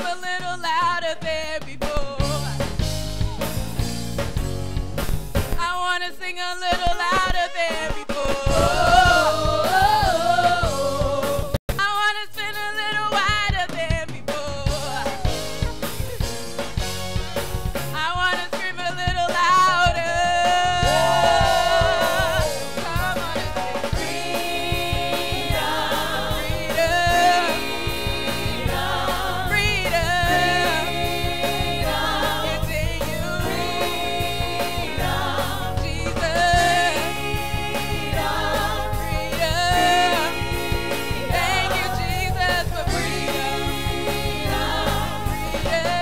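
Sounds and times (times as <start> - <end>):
full band with drum kit: 0.0 - 46.0
backing vocals: 6.5 - 11.6, 18.9 - 46.0
lead singer singing: 6.5 - 15.5, 18.0 - 46.0.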